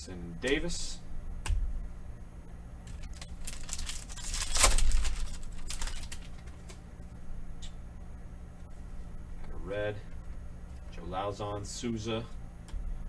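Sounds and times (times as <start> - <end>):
trading cards rustling and sliding: 2.9 - 6.8.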